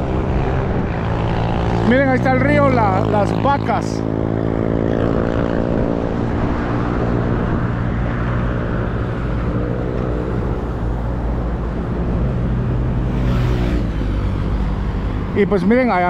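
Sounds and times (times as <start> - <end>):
vehicles passing on highway: 0.0 - 16.0.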